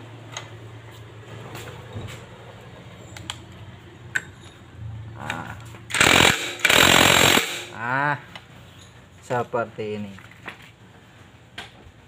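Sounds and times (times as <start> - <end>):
metal tools clinking: 4.1 - 4.7
impact driver bursts: 5.9 - 7.8.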